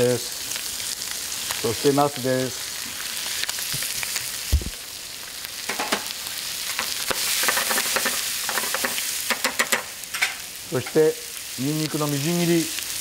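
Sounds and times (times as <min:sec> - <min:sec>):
food sizzling in a frying pan: 0:00.0 - 0:13.0
metal utensil scraping a pan: 0:06.7 - 0:11.0.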